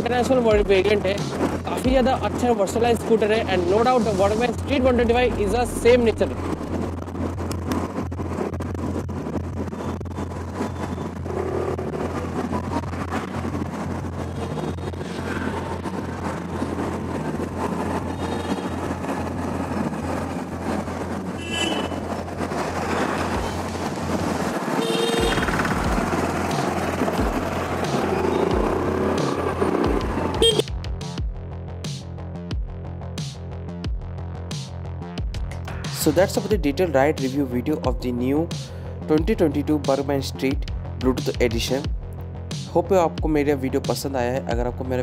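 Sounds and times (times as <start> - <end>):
road noise: 0.0 - 45.0
scooter engine humming: 8.8 - 30.7.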